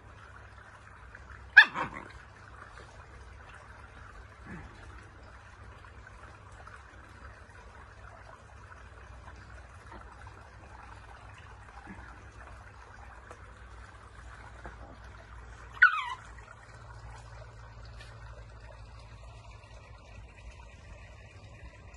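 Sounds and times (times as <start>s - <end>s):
faint steady hum: 0.0s - 21.9s
high-pitched animal call: 15.7s - 16.3s.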